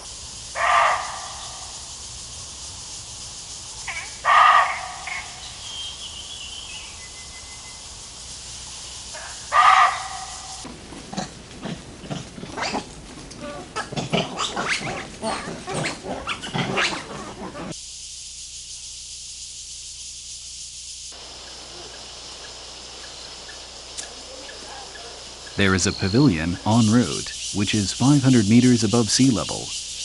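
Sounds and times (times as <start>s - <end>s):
forest background hiss: 0.0s - 30.0s
monkeys grunting and squealing: 11.0s - 17.8s.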